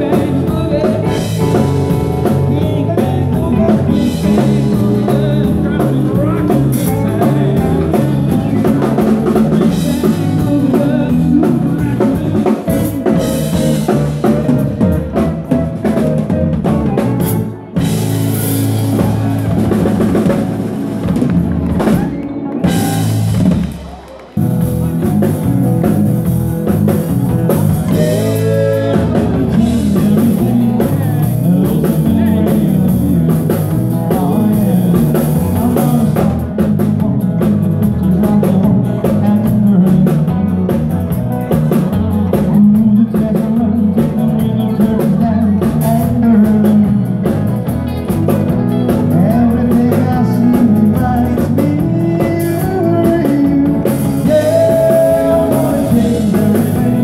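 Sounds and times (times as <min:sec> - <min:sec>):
person singing: 0:00.0 - 0:20.4, 0:24.8 - 0:57.0
drum kit: 0:00.0 - 0:57.0
guitar: 0:00.0 - 0:57.0.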